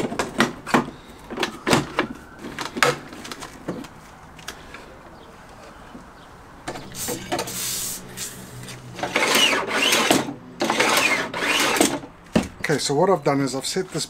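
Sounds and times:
saw rattling: 9.0s - 12.1s.

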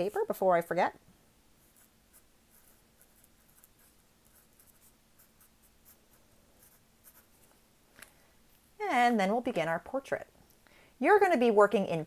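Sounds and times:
marker writing on paper: 1.6s - 7.4s.

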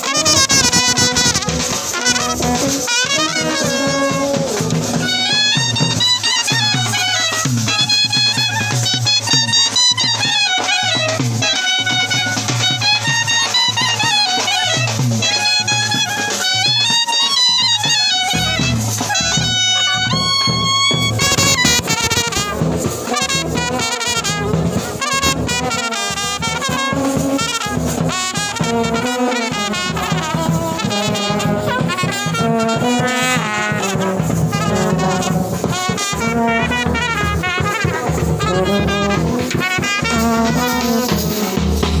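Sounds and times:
brass band playing: 0.0s - 42.0s
clarinet and trumpets melody: 0.0s - 42.0s
side drums: 0.0s - 42.0s
bass drum beat: 0.1s - 6.9s, 18.4s - 42.0s.

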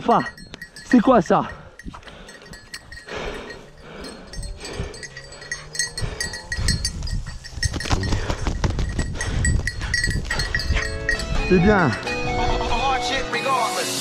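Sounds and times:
handling noise: 4.6s - 11.5s.

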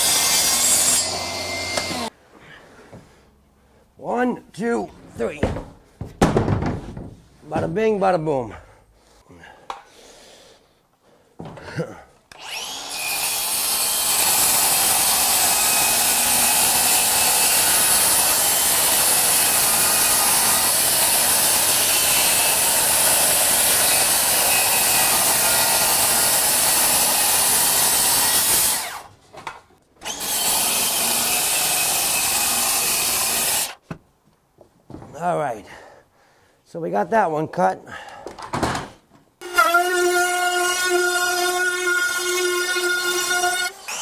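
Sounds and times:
circular saw cutting board: 0.0s - 2.1s.

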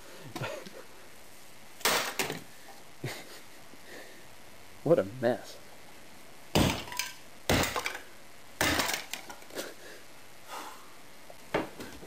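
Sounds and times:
metal bat smashing plastic: 1.8s - 2.5s, 6.5s - 8.0s, 8.6s - 9.4s
clatter of shattered pieces: 8.6s - 9.4s.

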